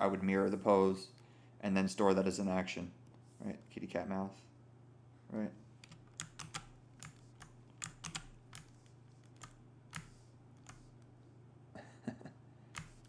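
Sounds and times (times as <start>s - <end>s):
low steady hum: 0.0s - 13.0s
keyboard and mouse clicking: 5.8s - 10.9s, 12.8s - 13.0s.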